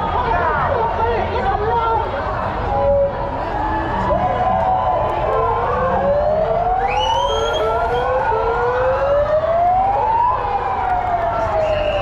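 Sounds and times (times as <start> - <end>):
siren wailing: 4.0 - 12.0.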